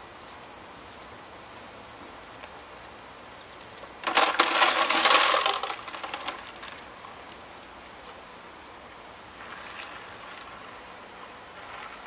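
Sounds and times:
ice cubes rattling against plastic: 4.0s - 6.9s.

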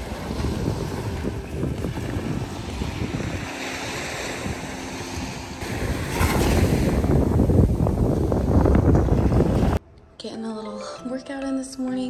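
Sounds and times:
small waves lapping on beach: 0.0s - 7.6s
wind buffeting microphone: 0.0s - 9.8s.

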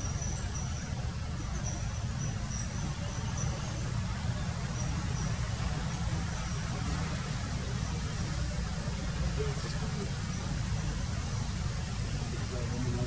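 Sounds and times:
faint insect trill: 0.0s - 8.7s.

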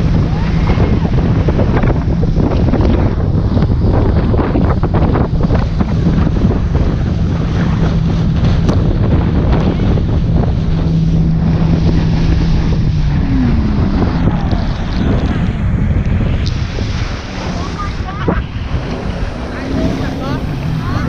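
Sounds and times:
boat engine droning: 0.0s - 21.0s
wind buffeting microphone: 0.0s - 21.0s.

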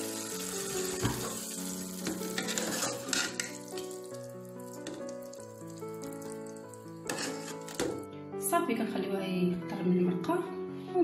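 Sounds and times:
background music with held notes: 0.0s - 11.0s
metal ladle clinking and scraping: 2.0s - 3.9s, 7.0s - 8.0s.

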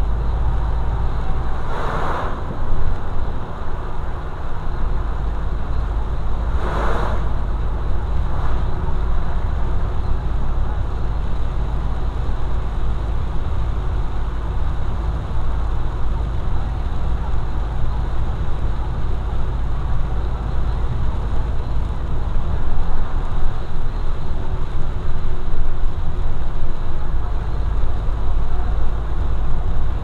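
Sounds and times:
tyre noise on wet road: 0.0s - 30.0s
vehicle driving on wet road: 0.0s - 30.0s
brief whooshes: 1.6s - 2.7s, 6.5s - 7.4s.

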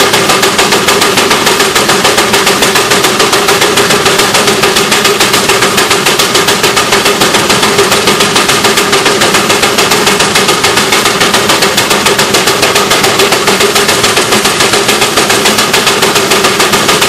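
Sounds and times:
steam engine exhaust chuffing: 0.0s - 17.0s.

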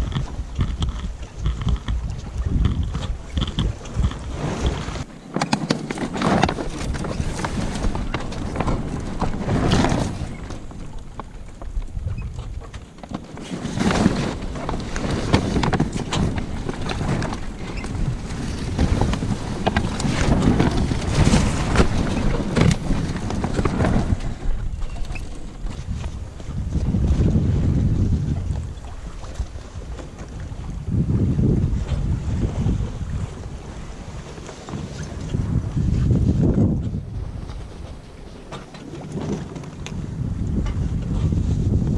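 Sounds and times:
wind noise on microphone: 0.0s - 41.9s
sail cloth rustling: 3.7s - 28.2s, 32.6s - 40.2s.

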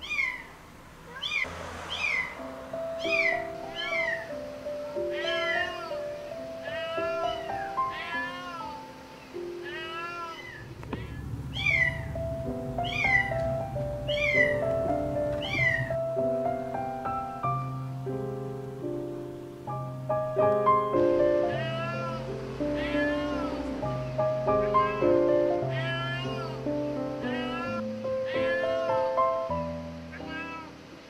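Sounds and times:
cat meowing: 0.0s - 2.4s, 3.0s - 8.9s, 9.6s - 12.2s, 12.8s - 14.7s, 15.4s - 16.0s, 21.5s - 29.2s, 30.1s - 30.8s
background music of sustained notes: 1.4s - 31.0s.

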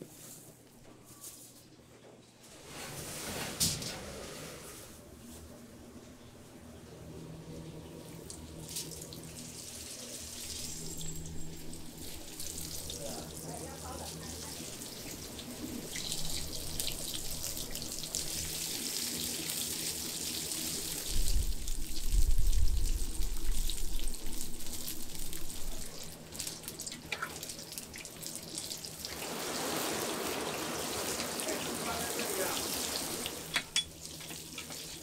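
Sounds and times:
deep-frying sizzle and crackle: 8.1s - 35.0s.

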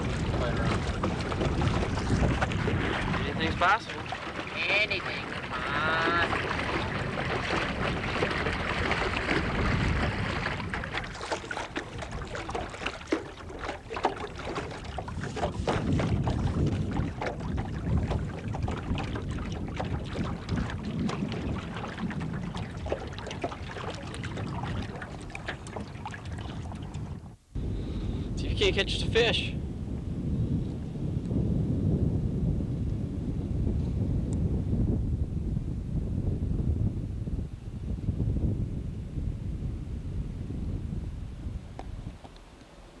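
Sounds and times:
water slapping against hull: 0.0s - 27.4s
wind buffeting microphone: 0.0s - 43.0s.

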